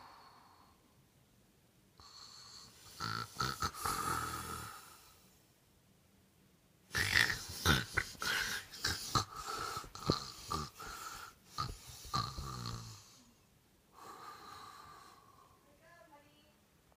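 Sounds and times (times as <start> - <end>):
person making mock snoring sounds: 2.0 - 5.1, 6.9 - 13.3.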